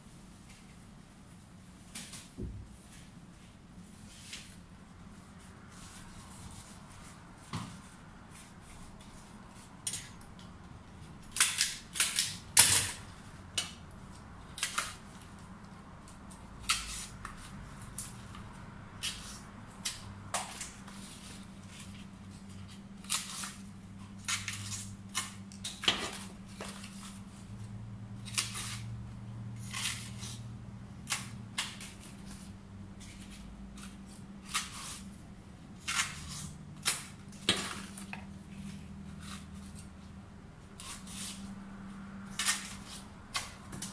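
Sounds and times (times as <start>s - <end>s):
clicks and snaps of leaves: 22.6s - 27.2s, 28.2s - 28.9s, 31.0s - 32.5s.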